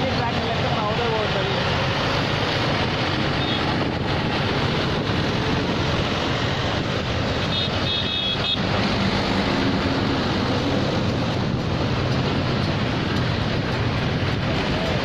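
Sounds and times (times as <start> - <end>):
motorcycle engines: 0.0 - 15.0
tractor engines: 0.0 - 15.0
wind buffeting microphone: 2.0 - 7.5, 8.6 - 15.0.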